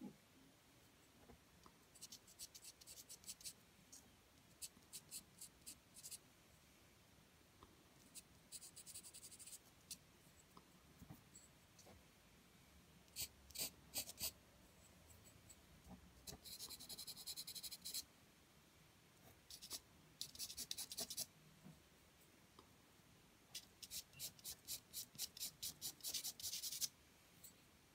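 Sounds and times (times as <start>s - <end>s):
pencil scratching on paper: 1.9s - 3.6s, 4.5s - 6.2s, 8.0s - 10.0s, 13.1s - 14.4s, 16.2s - 18.0s, 19.2s - 21.3s, 23.6s - 26.9s.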